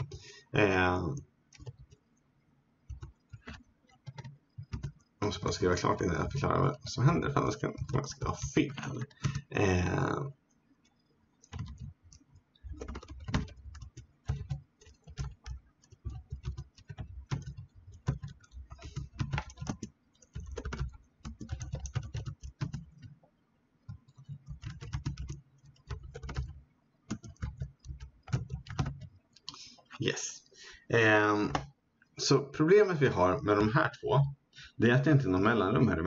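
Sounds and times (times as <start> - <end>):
computer keyboard typing: 0.0 - 2.1, 2.9 - 10.1, 10.8 - 29.9.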